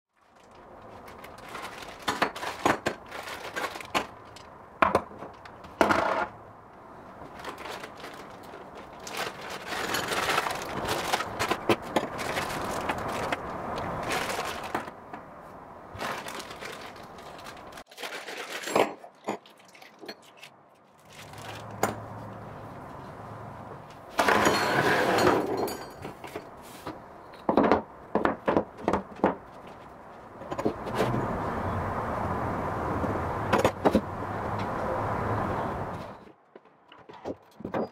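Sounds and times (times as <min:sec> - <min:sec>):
plastic zip bags crinkling: 0:00.2 - 0:04.5, 0:07.2 - 0:14.9, 0:15.9 - 0:18.7, 0:19.6 - 0:21.8.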